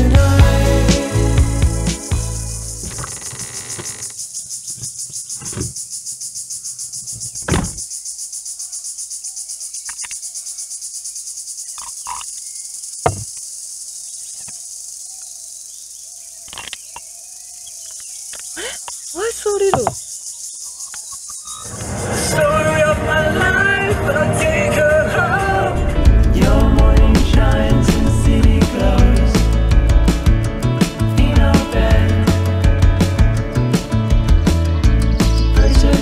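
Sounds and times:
music: 0.0 - 2.9, 22.4 - 36.0
insect chorus trilling: 1.2 - 22.5.

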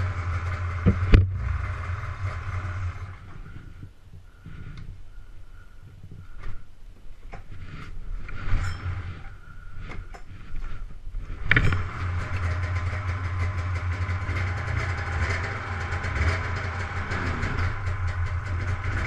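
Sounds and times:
engine knocks: 0.0 - 3.8, 11.4 - 19.0
snowmobile engine idling: 0.0 - 4.5, 11.4 - 19.0.

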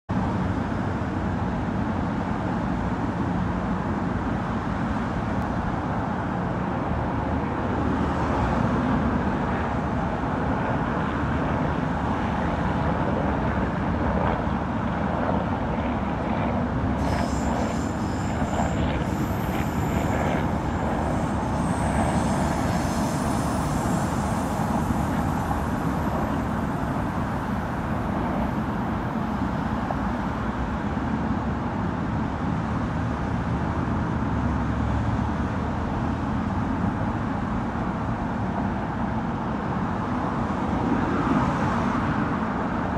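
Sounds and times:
expressway traffic rush: 0.1 - 42.9
high whine: 8.9 - 31.6.

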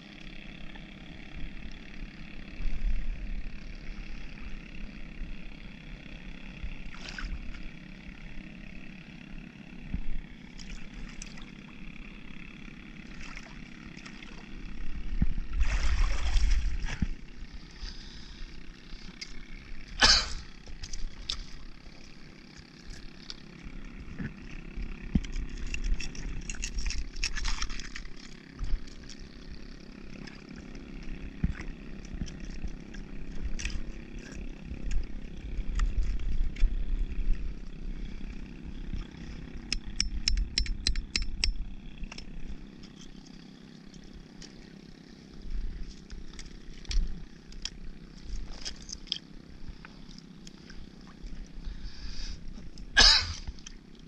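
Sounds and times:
steady low drone: 0.0 - 54.0
metal tool knocking oyster shells: 39.8 - 41.6.

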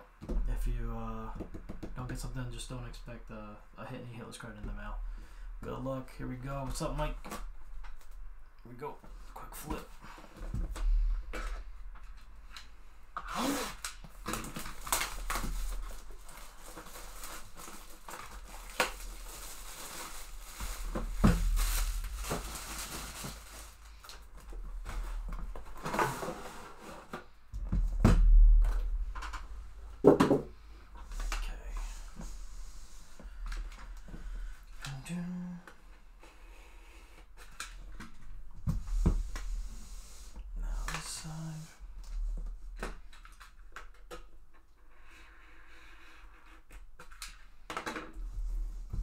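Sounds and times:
rustling: 9.1 - 35.0.

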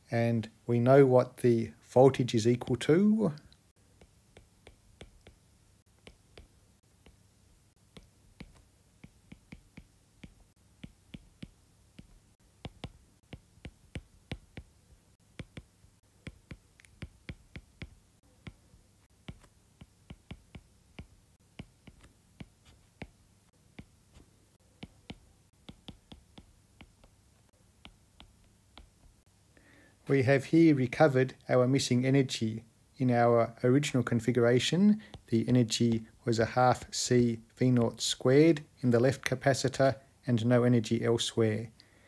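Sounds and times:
stylus tapping on drawing tablet: 4.0 - 7.3, 7.9 - 27.2, 27.8 - 29.2.

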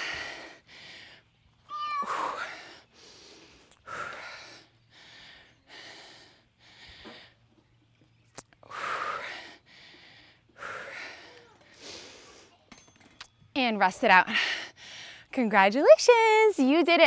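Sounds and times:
woman breathing hard: 0.0 - 1.3, 2.0 - 7.5, 8.6 - 12.5.

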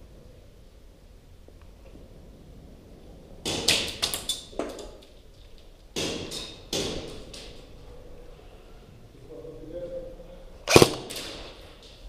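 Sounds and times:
airsoft gunfire cracks: 10.7 - 11.4.

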